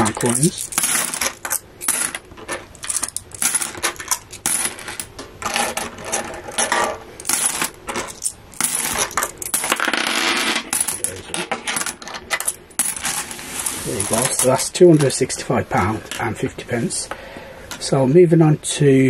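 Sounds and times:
coins jingling in a plastic tub: 0:00.0 - 0:15.1
coins clicking onto stacks: 0:00.0 - 0:15.2.

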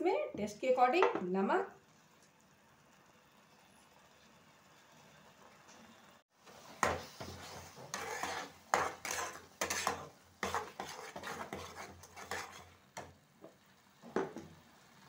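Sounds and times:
spatula scraping a pan: 0:06.4 - 0:13.2.

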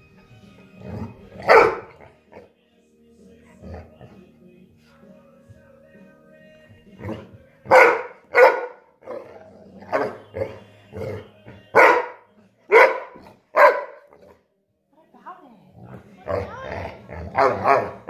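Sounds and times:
dog barking: 0:01.4 - 0:02.1, 0:07.7 - 0:09.3, 0:09.9 - 0:10.6, 0:11.7 - 0:14.4, 0:17.3 - 0:18.0.

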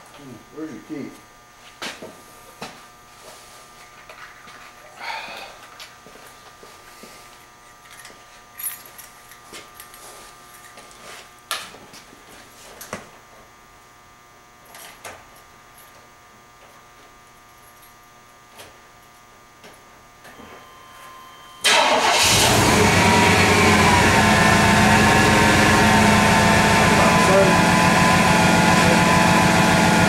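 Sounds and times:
car engine starting and idling: 0:21.6 - 0:30.0.

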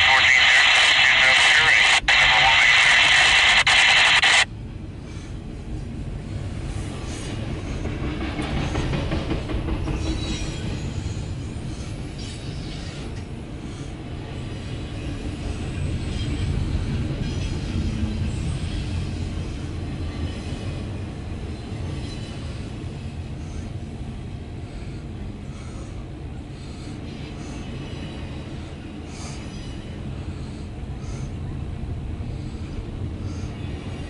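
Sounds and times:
radio static hissing: 0:00.0 - 0:04.5
freight train rumbling past: 0:04.5 - 0:34.0.

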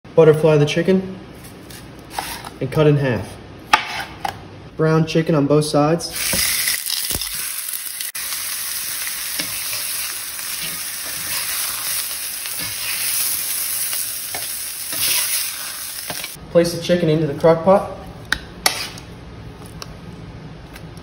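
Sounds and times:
chicken sizzling in oil: 0:06.2 - 0:16.4.

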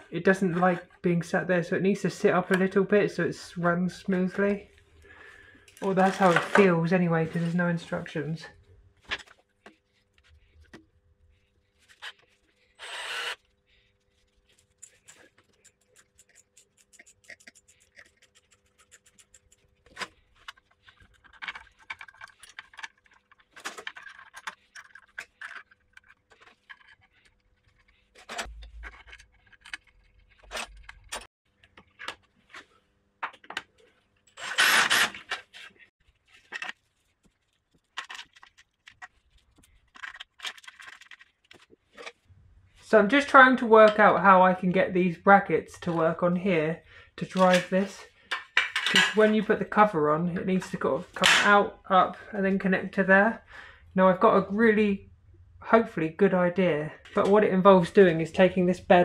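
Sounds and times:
cordless driver running: 0:12.8 - 0:13.4, 0:34.4 - 0:35.1
metal clicks taps and scrapes: 0:14.6 - 0:32.3.

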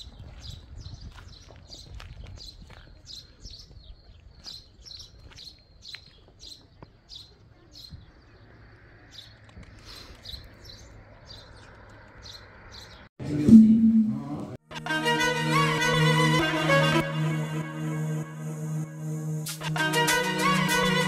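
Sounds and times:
small birds chirping: 0:00.0 - 0:13.1.

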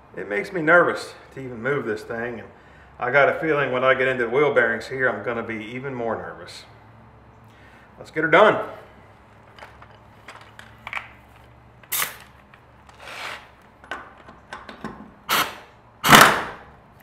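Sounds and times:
pneumatic impact wrench bursts: 0:11.9 - 0:13.6, 0:15.3 - 0:16.7.

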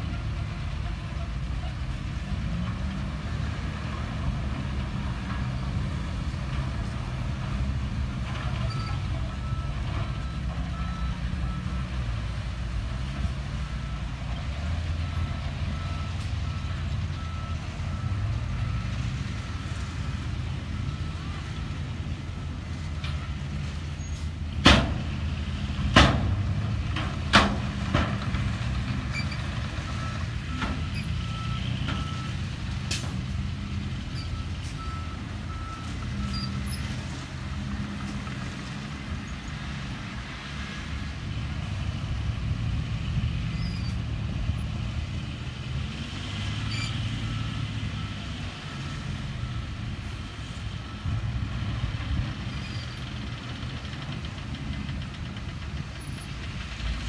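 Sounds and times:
diesel engines running: 0:00.0 - 0:57.0.

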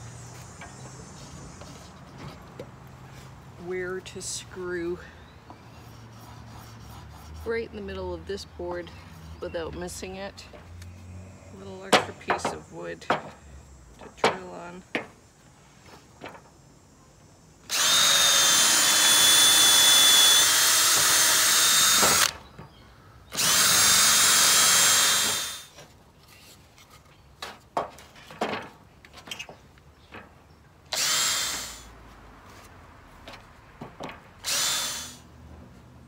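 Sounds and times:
cordless drill boring into wood: 0:17.7 - 0:22.4, 0:23.3 - 0:25.7, 0:30.9 - 0:31.9, 0:34.4 - 0:35.2.

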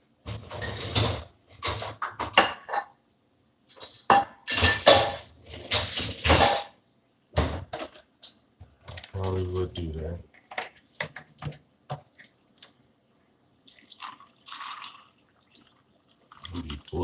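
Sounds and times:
dishes and utensils clattering: 0:00.3 - 0:03.0, 0:03.7 - 0:06.8.

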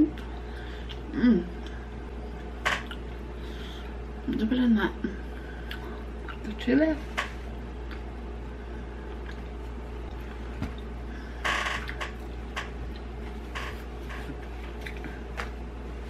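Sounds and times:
low hum: 0:00.0 - 0:16.0
tortilla rustling: 0:12.1 - 0:16.0.

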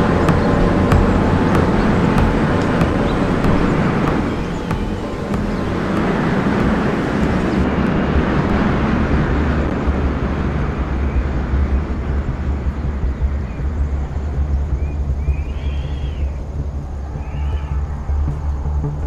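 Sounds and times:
deep rumble: 0:00.0 - 0:19.0.

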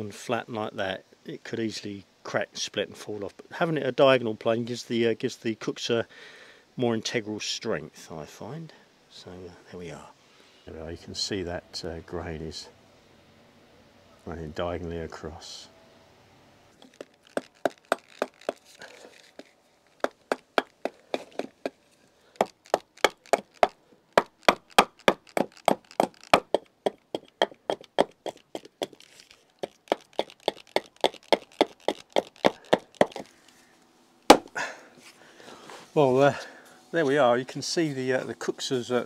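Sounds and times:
blade chopping wood: 0:22.4 - 0:29.0, 0:29.6 - 0:33.3, 0:34.3 - 0:34.6.

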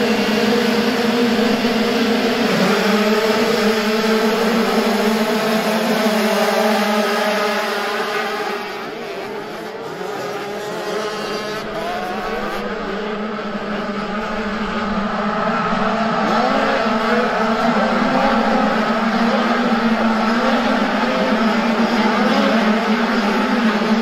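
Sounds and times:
motocross bikes revving: 0:00.0 - 0:24.0.

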